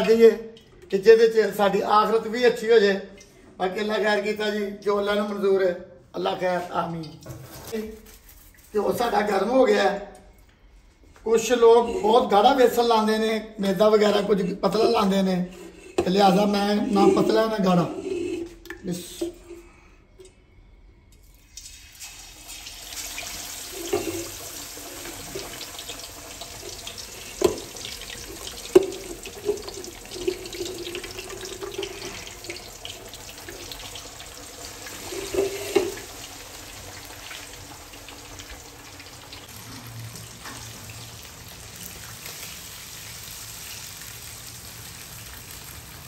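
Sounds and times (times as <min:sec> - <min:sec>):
fish frying in oil: 0:22.0 - 0:46.0.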